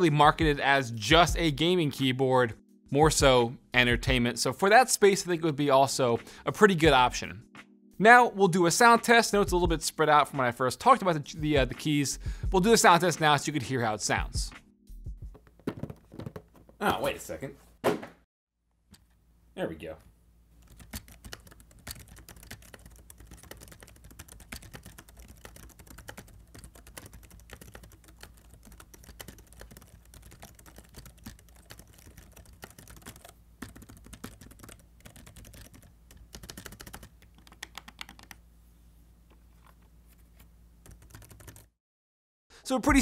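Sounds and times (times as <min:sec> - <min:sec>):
keyboard typing clicks: 0:20.6 - 0:38.4.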